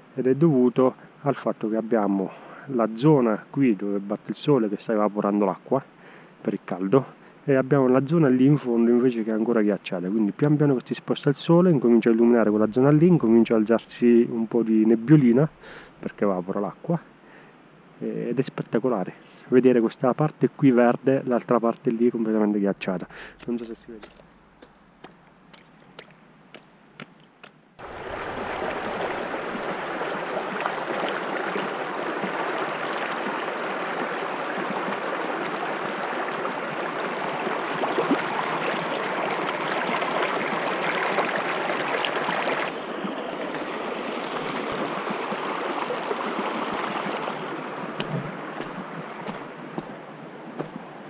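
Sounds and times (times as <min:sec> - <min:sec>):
stream rushing over rocks: 0:27.8 - 0:51.0.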